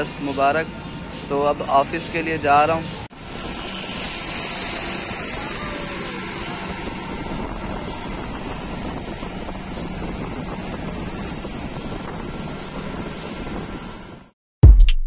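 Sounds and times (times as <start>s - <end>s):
road and wind noise: 0.0s - 14.3s
low engine hum: 3.1s - 14.3s.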